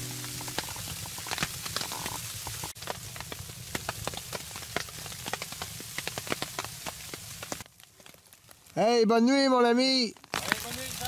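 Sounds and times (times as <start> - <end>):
steady hiss: 0.0 - 7.7
wood fire crackling in stove: 0.0 - 8.9, 10.0 - 11.0.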